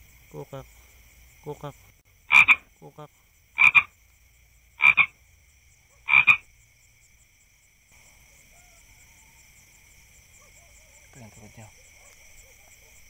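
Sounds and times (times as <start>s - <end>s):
frog croaking: 0.0s - 7.2s
high insect trill: 0.0s - 13.0s.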